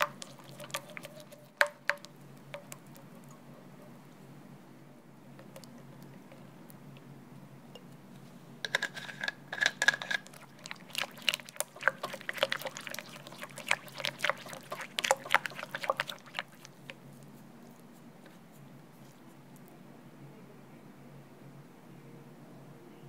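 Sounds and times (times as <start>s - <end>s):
spatula stirring thick cream: 0.0s - 3.4s, 8.7s - 19.4s.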